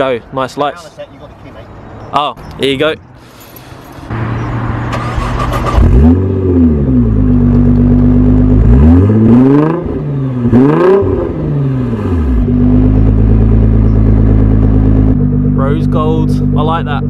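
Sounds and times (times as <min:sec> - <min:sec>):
car engine starting and revving: 0:04.0 - 0:17.0
car engine idling: 0:11.6 - 0:17.0.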